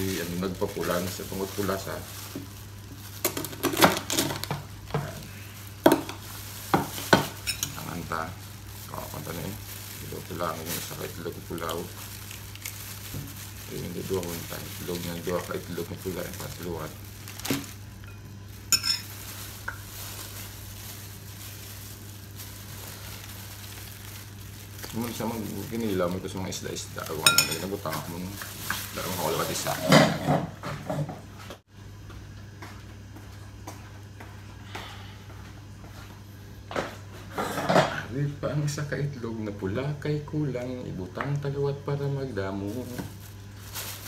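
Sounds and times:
steady hiss: 0.0s - 3.0s, 4.5s - 17.9s, 18.6s - 29.8s
plastic bag rustling: 0.0s - 30.2s, 42.6s - 44.0s
low even hum: 0.0s - 44.0s
utensil clinking against bowl: 27.2s - 28.1s.

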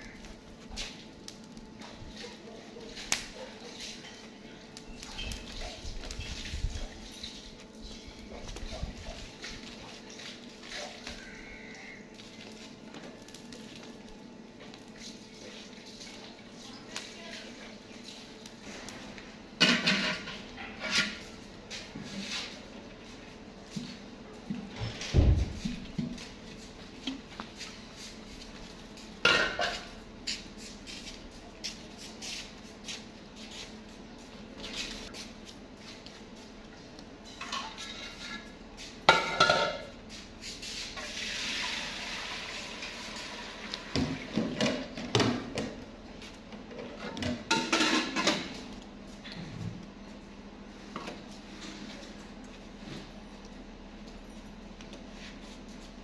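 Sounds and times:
pot lid and bucket clanking: 46.8s - 48.6s.

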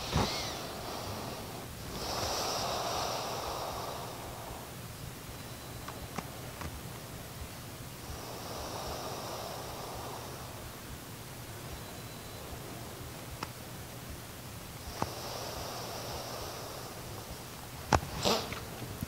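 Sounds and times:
person breathing deeply: 0.0s - 4.8s, 8.0s - 10.8s, 14.8s - 17.4s.

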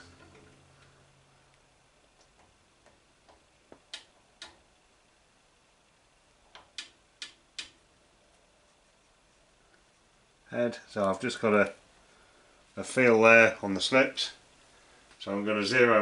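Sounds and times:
sharp metallic clicks: 6.5s - 7.8s.

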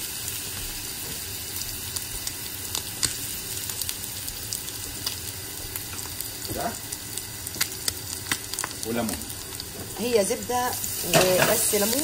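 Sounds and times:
butter sizzling in a frying pan: 0.0s - 12.0s
fat popping and crackling: 7.5s - 9.7s.

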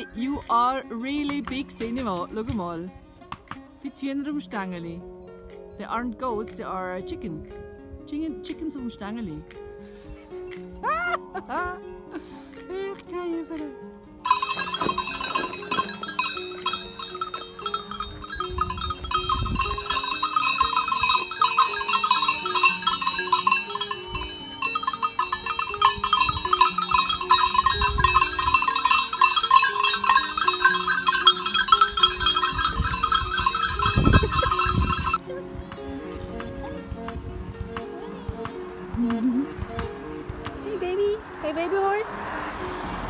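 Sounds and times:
goat bells jangling: 14.2s - 36.9s.

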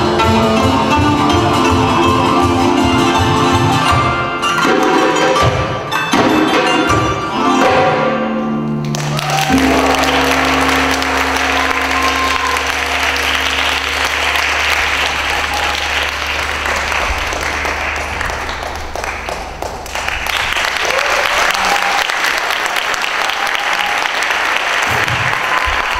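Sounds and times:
instrumental music: 0.0s - 19.6s
audience applauding: 8.8s - 25.9s.

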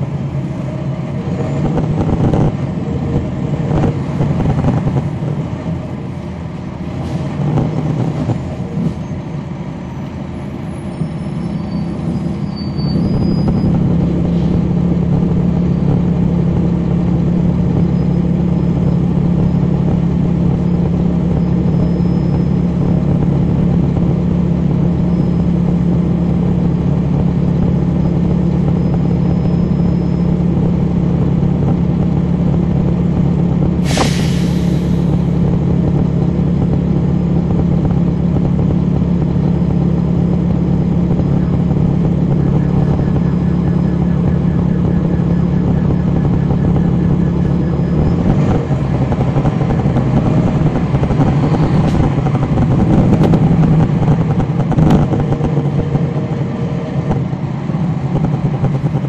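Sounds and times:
bus diesel engine running: 0.0s - 59.0s
air release hiss: 33.8s - 35.1s.

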